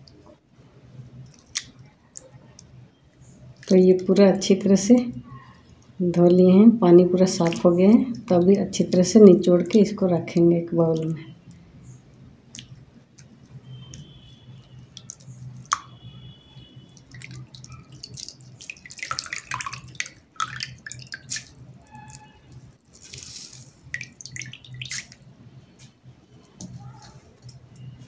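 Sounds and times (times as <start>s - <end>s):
water dripping and splashing: 3.6s - 3.8s, 7.3s - 8.3s, 12.5s - 25.9s.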